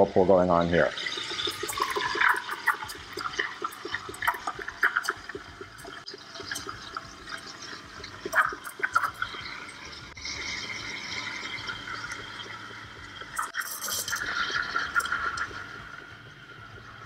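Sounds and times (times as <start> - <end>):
milk gurgling and sputtering: 0.6 - 17.0
steam wand hissing into milk: 1.0 - 5.4.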